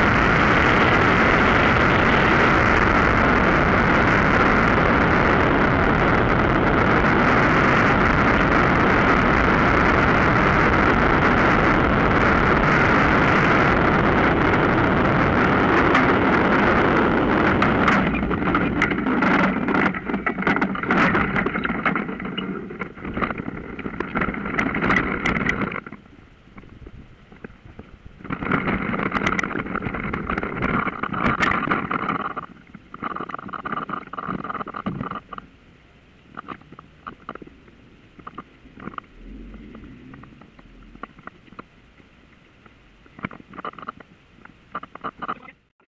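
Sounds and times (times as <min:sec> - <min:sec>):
wind rush: 0:00.0 - 0:25.9, 0:37.5 - 0:43.8.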